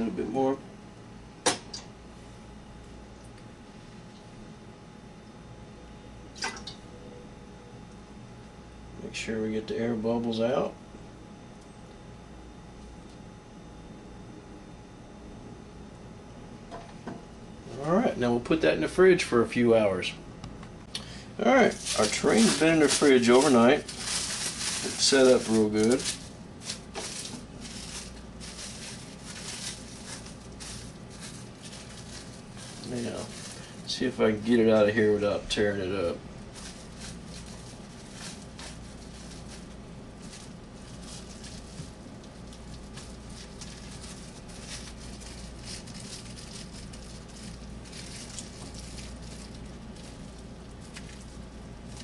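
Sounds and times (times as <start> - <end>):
low steady hum: 0.0 - 52.0
kitchen handling rubs: 21.6 - 35.2.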